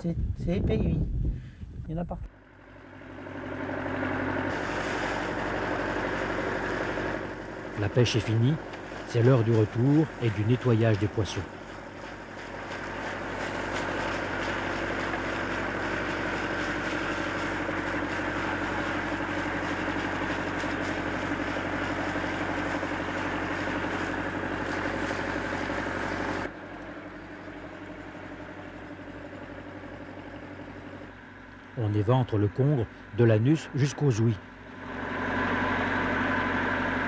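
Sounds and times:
engine idling: 0:02.3 - 0:37.0
hose spraying water into crates: 0:04.5 - 0:26.5.

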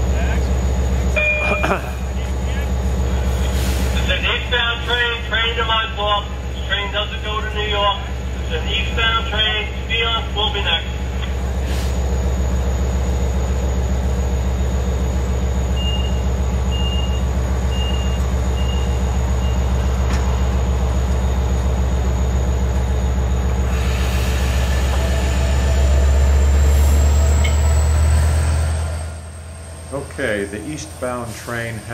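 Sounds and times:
diesel train engine humming: 0:00.0 - 0:31.9
short high beeps: 0:01.2 - 0:01.6.

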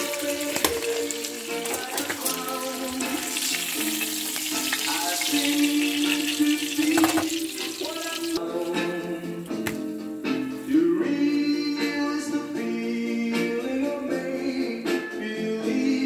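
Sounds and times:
fish frying in hot oil: 0:00.0 - 0:08.8
background music: 0:00.0 - 0:16.0.

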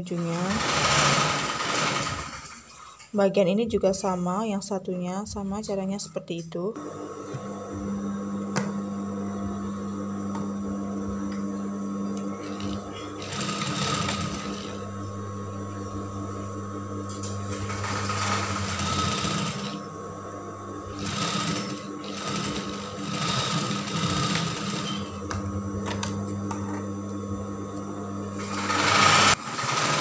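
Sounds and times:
sewing machine motor humming: 0:00.0 - 0:02.8, 0:12.2 - 0:19.9, 0:20.8 - 0:26.1, 0:28.2 - 0:30.0
sewing machine stitching: 0:00.1 - 0:02.9, 0:12.4 - 0:14.8, 0:17.5 - 0:19.8, 0:20.9 - 0:25.2, 0:28.4 - 0:30.0.

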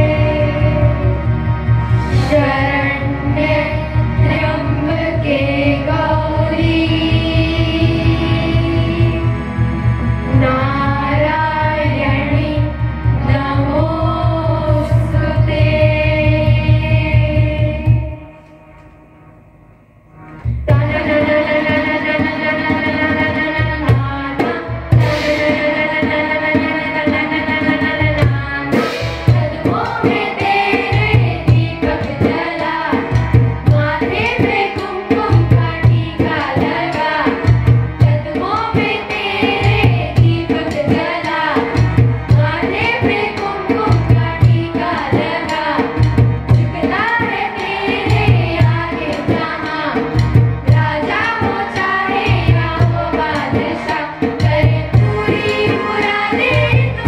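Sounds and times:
children singing into microphones: 0:00.0 - 0:18.8, 0:20.4 - 0:57.0
instrumental accompaniment: 0:00.0 - 0:57.0
steady repeating drum beat: 0:24.7 - 0:25.8, 0:28.0 - 0:34.7.

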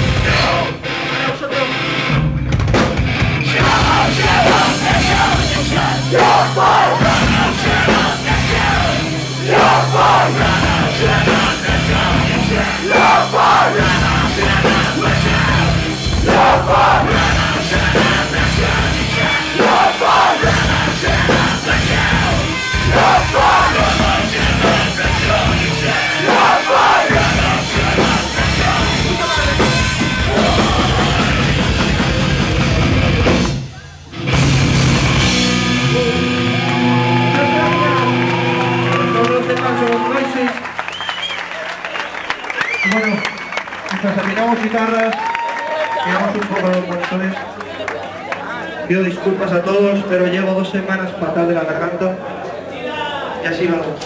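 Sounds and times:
yelled vocals: 0:00.0 - 0:01.9, 0:03.1 - 0:40.4
heavy rock band playing: 0:00.0 - 0:40.0
pounding drums: 0:02.4 - 0:36.4.

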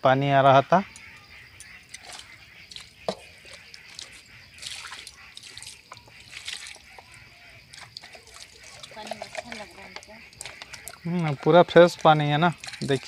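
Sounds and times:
water splashing on ground: 0:01.6 - 0:13.0.

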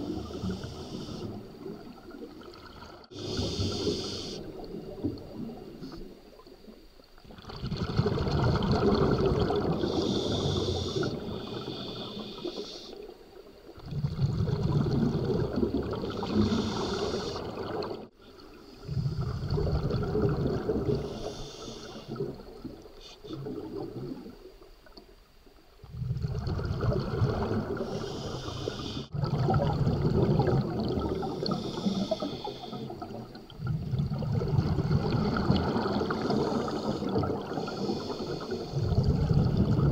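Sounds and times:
scuba regulator breathing underwater: 0:00.0 - 0:01.7, 0:03.1 - 0:04.8, 0:08.6 - 0:13.1, 0:14.6 - 0:18.0, 0:18.7 - 0:22.4, 0:26.8 - 0:39.9.

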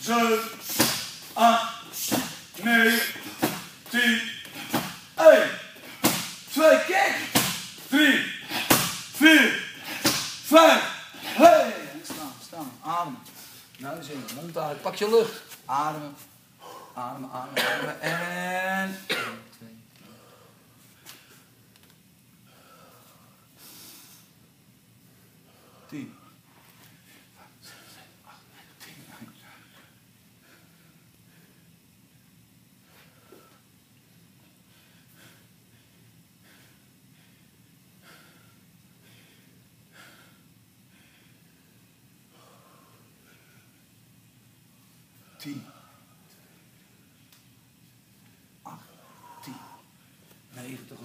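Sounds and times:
man breathing heavily: 0:00.0 - 0:12.0, 0:16.6 - 0:17.0, 0:20.0 - 0:21.5, 0:22.4 - 0:24.4, 0:25.1 - 0:31.8, 0:32.8 - 0:33.7, 0:34.5 - 0:43.9, 0:44.9 - 0:47.2, 0:48.4 - 0:50.4
deep controlled breathing: 0:22.4 - 0:24.4, 0:34.6 - 0:43.9, 0:48.3 - 0:50.3.

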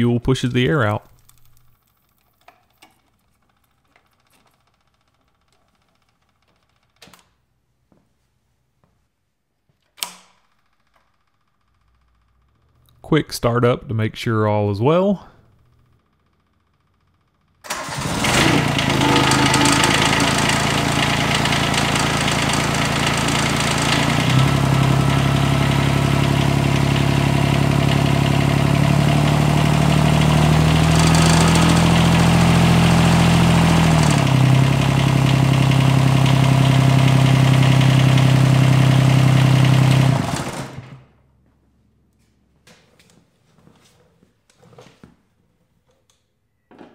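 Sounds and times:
diesel engine starting and running: 0:17.5 - 0:41.4.

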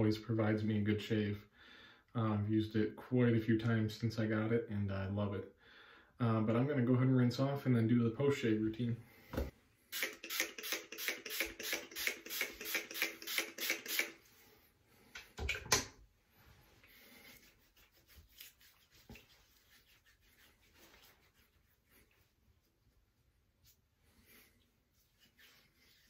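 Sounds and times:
rubbing and wiping face: 0:16.3 - 0:26.0.

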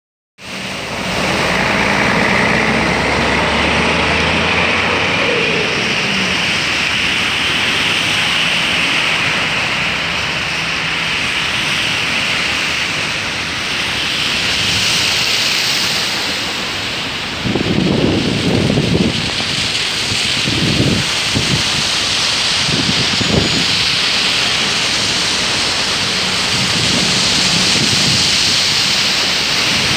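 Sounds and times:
bus engine passing: 0:00.4 - 0:29.9
car splashing through water: 0:00.4 - 0:29.9
tyres hissing through spray: 0:19.4 - 0:29.9.

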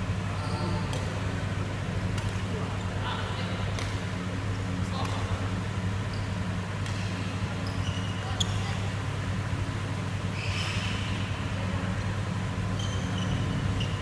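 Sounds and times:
steady low hum: 0:00.0 - 0:14.0
sneakers squeaking on court floor: 0:06.0 - 0:09.0, 0:10.2 - 0:11.4, 0:12.6 - 0:14.0.

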